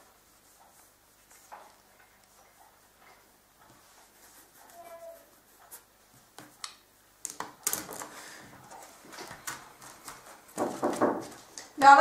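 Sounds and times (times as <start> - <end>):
paper rustling and tapping on desk: 5.7 - 11.9
knocks on a door: 10.6 - 11.4.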